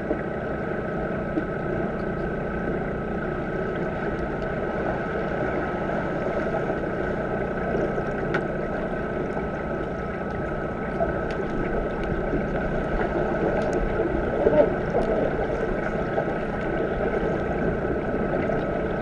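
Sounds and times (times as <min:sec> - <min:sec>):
high hum: 0:00.0 - 0:19.0
underwater rushing water: 0:00.0 - 0:19.0
faint clicks and knocks: 0:07.7 - 0:18.7.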